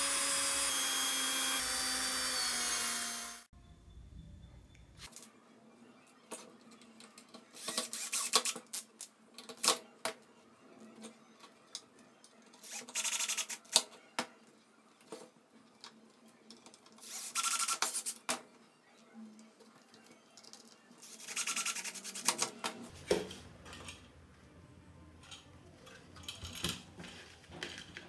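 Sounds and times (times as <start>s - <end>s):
cordless drill driving screws: 0.0s - 3.5s.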